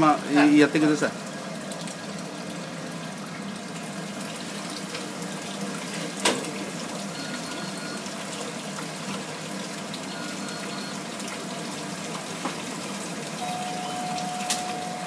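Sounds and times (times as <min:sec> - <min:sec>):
water boiling in a pot: 0:00.0 - 0:15.0
low steady hum: 0:13.4 - 0:15.0.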